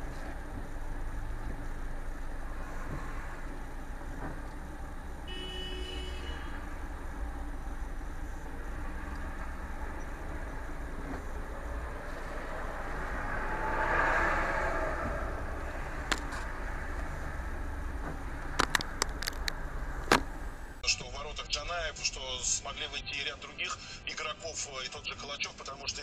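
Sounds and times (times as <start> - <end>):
idling cars rumbling: 0.0 - 26.0
car horn: 5.2 - 6.9.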